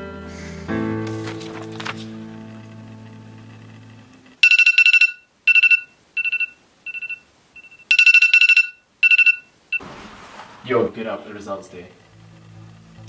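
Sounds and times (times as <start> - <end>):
background music: 0.0 - 4.4
smartphone alarm beeping: 4.4 - 9.8.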